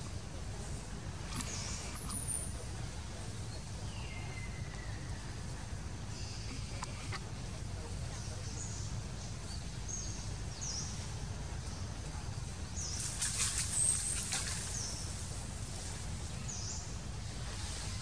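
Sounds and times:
steady low rumble: 0:00.0 - 0:13.2
small birds chirping: 0:00.0 - 0:18.0.

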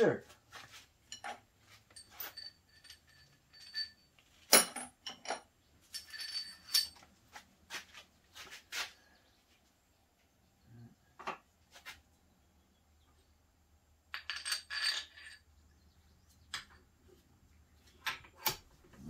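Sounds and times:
metal tools clinking on workbench: 0:00.7 - 0:07.1, 0:14.1 - 0:15.5.

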